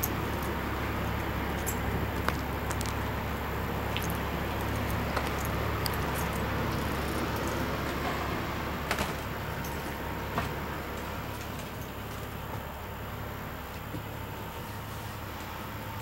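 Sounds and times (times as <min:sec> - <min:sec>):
clicks and knocks of footsteps: 0:01.5 - 0:03.2, 0:03.9 - 0:07.0.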